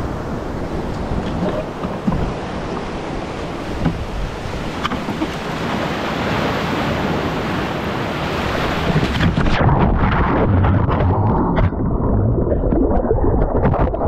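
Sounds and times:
ocean surf breaking: 0.0s - 10.9s
wind buffeting microphone: 0.0s - 14.0s.

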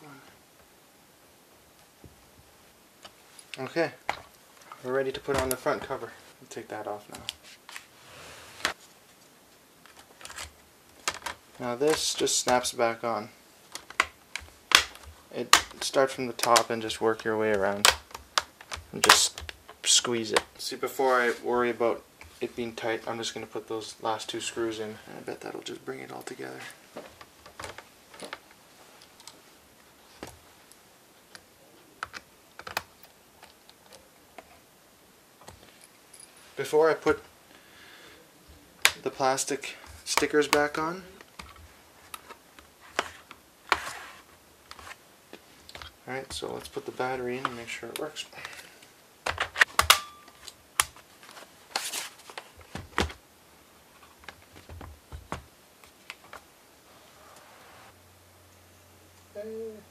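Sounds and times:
sliding rustle: 7.4s - 9.3s, 41.5s - 45.6s, 56.8s - 58.0s.

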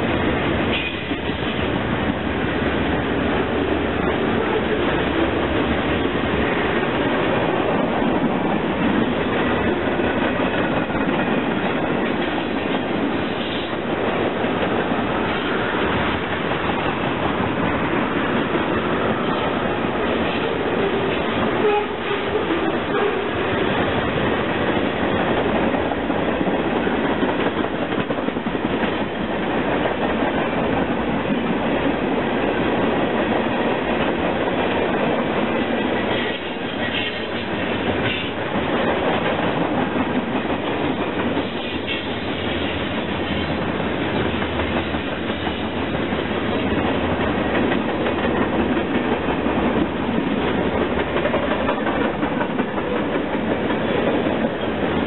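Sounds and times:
train wheels on rails: 0.0s - 55.0s.

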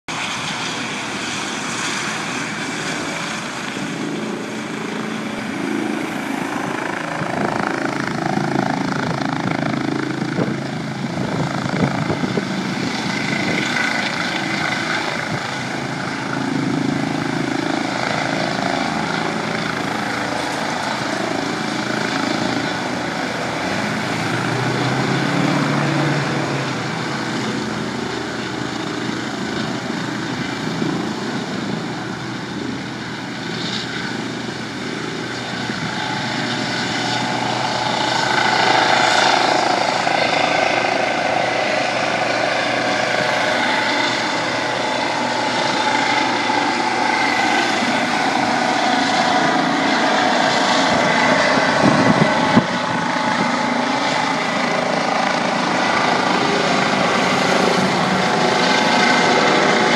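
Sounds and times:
helicopter rotor and engine: 0.1s - 59.9s.

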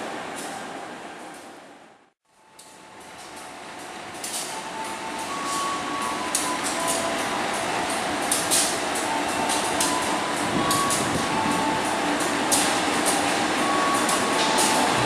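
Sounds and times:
locomotive engine running: 3.2s - 15.0s.

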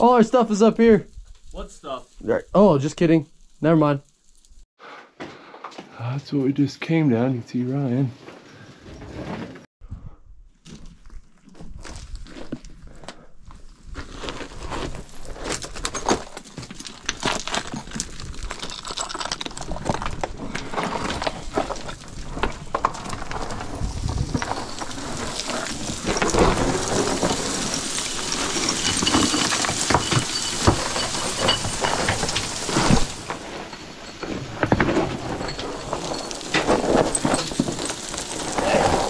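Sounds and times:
footsteps on loose rock and gravel: 10.6s - 39.0s.

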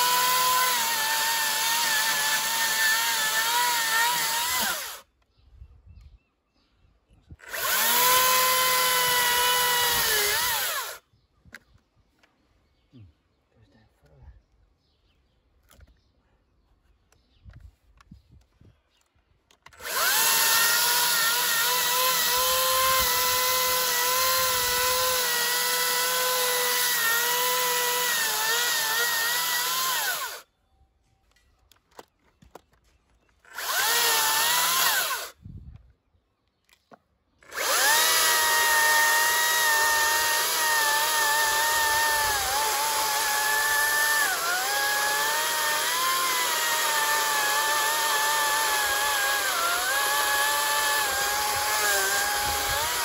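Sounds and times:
electric chainsaw cutting wood: 0.0s - 5.1s, 7.4s - 11.0s, 19.6s - 30.5s, 33.4s - 35.4s, 37.4s - 53.0s.

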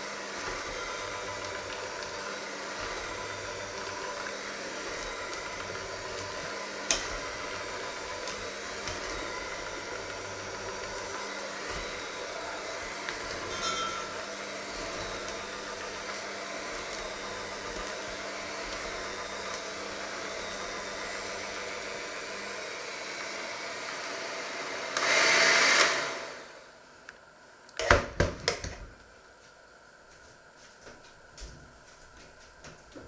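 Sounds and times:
electric hand mixer running: 0.0s - 26.8s.

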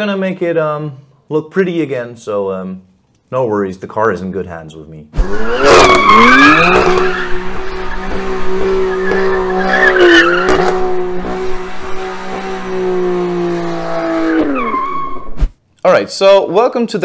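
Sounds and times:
car engine at high revs: 5.2s - 15.4s
tyres squealing: 5.3s - 12.6s.

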